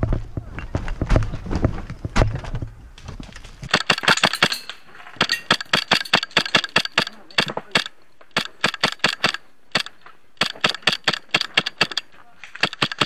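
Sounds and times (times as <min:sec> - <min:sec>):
footsteps over rubble: 0:00.0 - 0:06.1
airsoft gunfire bursts: 0:03.7 - 0:04.6, 0:05.2 - 0:12.0, 0:12.6 - 0:13.0.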